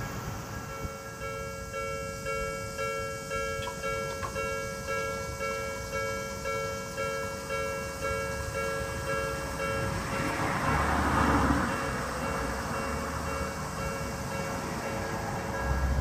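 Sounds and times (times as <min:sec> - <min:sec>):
level crossing warning bell: 0:00.0 - 0:16.0.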